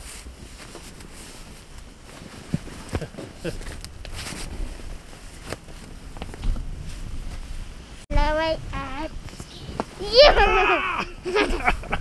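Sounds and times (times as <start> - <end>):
footsteps crunching in snow: 0.0 - 8.0.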